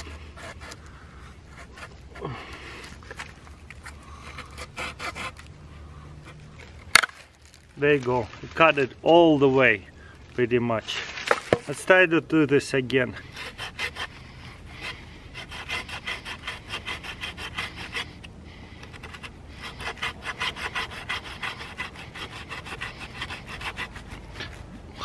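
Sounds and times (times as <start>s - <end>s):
hand saw rasping on wood: 0.0s - 0.8s, 1.5s - 2.4s, 3.8s - 5.5s, 13.2s - 24.6s.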